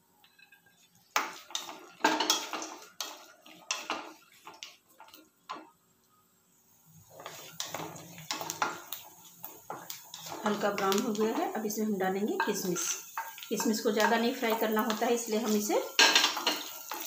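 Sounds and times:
dry fruits frying in oil: 0:00.0 - 0:17.0
spatula scraping a pan: 0:00.2 - 0:05.2, 0:07.0 - 0:11.6, 0:12.3 - 0:17.0.

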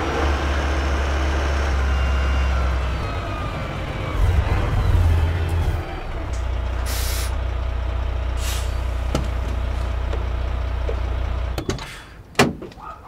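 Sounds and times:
truck engine rumbling: 0:00.0 - 0:13.0
air brakes hissing: 0:06.8 - 0:07.4, 0:08.4 - 0:09.2, 0:11.6 - 0:12.2.

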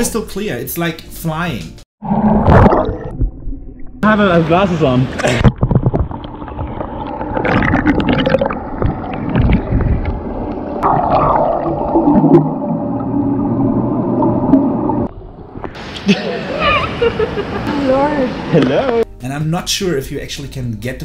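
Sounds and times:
bubbling: 0:02.0 - 0:15.8
muffled underwater water noise: 0:02.0 - 0:16.5
clicks underwater: 0:05.2 - 0:12.5.

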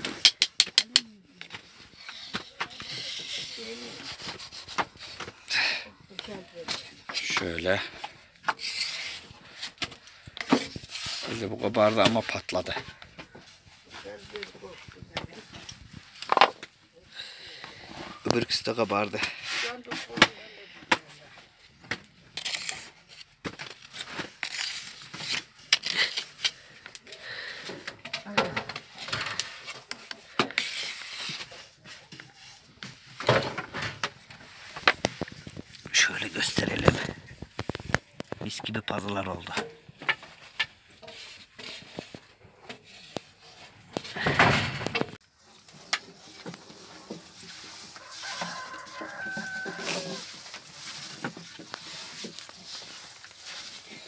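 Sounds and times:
sharp clicks and knocks: 0:00.0 - 0:01.1
scraping and rustling on griddle: 0:01.3 - 0:16.5, 0:17.3 - 0:21.3, 0:22.1 - 0:38.3, 0:39.8 - 0:54.0.

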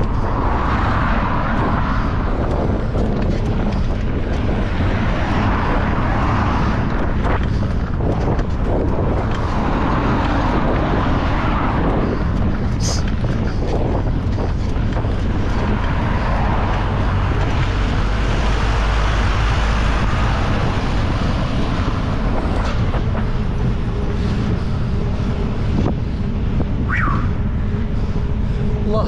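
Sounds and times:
deep rumble: 0:00.0 - 0:29.0
vehicles passing: 0:00.0 - 0:29.0
wind rush on microphone: 0:00.0 - 0:29.0.

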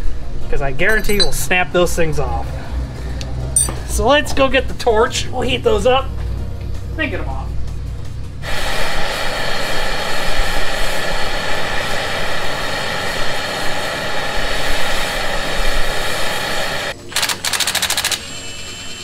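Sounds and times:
impact wrench hammering: 0:03.6 - 0:03.8
gas torch flame hissing: 0:08.4 - 0:19.0.

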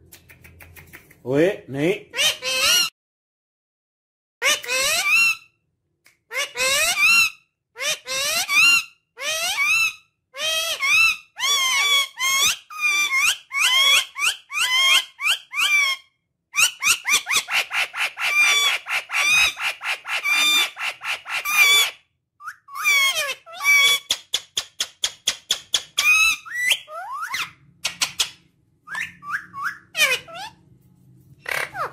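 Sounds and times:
parakeet screeching: 0:02.1 - 0:02.9, 0:04.4 - 0:05.5, 0:06.3 - 0:16.0, 0:16.6 - 0:24.2, 0:25.8 - 0:28.3, 0:28.9 - 0:30.6, 0:31.4 - 0:31.9
parakeet chattering: 0:22.8 - 0:30.6, 0:31.4 - 0:31.9.

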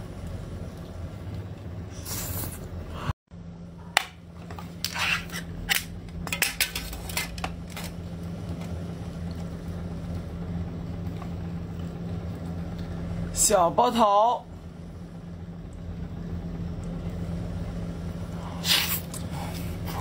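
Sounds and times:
can lid peeling and scraping: 0:04.8 - 0:05.9
eating sounds: 0:18.4 - 0:20.0.

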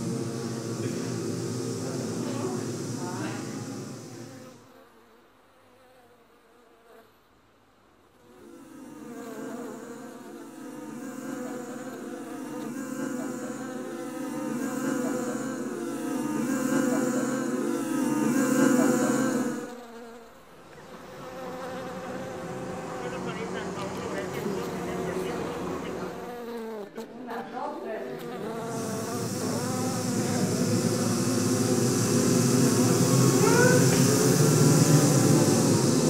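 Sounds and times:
swarm of bees buzzing: 0:00.0 - 0:05.0, 0:08.3 - 0:36.0.

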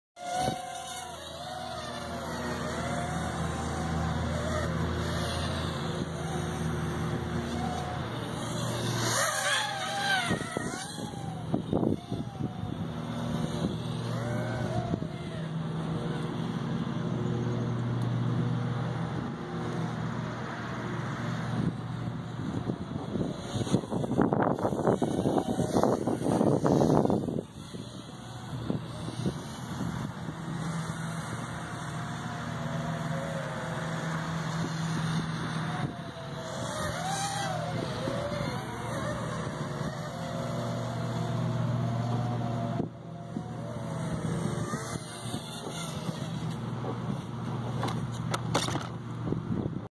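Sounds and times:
drone propellers buzzing: 0:00.2 - 0:49.9
wind buffeting microphone: 0:08.4 - 0:15.5, 0:21.5 - 0:32.1, 0:48.5 - 0:49.9.

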